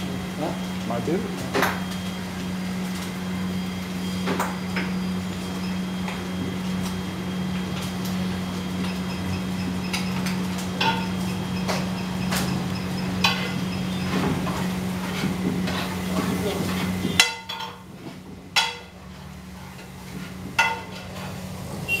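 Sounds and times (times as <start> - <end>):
metal pots and utensils clanking: 8.9 - 21.6.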